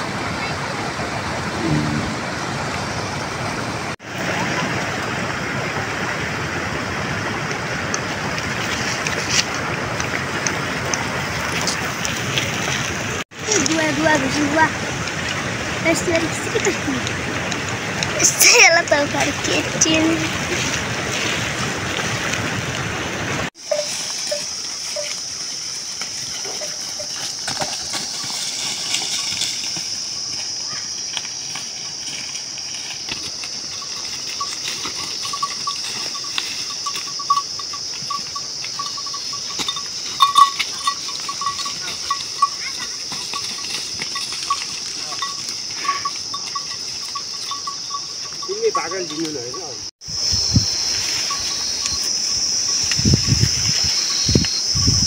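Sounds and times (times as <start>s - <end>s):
high-pitched insect drone: 23.6s - 55.0s
quick repeated insect chirping: 23.6s - 55.0s.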